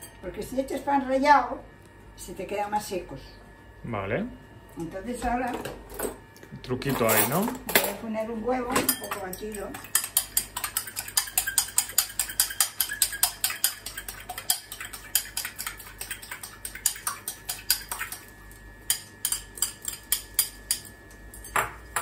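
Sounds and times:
fork clinking in ceramic bowl: 0:08.8 - 0:18.2, 0:18.8 - 0:21.8.

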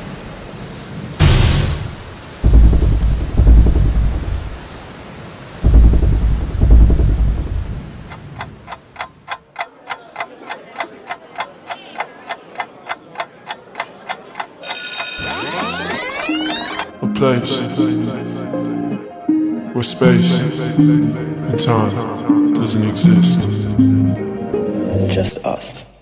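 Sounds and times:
clock ticking: 0:02.4 - 0:04.7, 0:05.7 - 0:16.9.

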